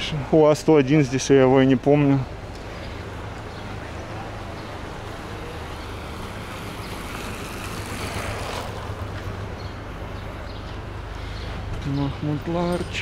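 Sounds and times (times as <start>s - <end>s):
steady low traffic rumble: 0.0s - 13.0s
vehicle passing close by: 3.0s - 11.8s.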